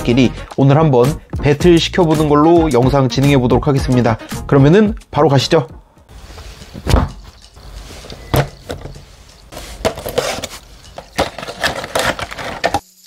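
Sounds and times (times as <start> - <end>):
craft knife scraping cardboard: 9.5 - 12.7.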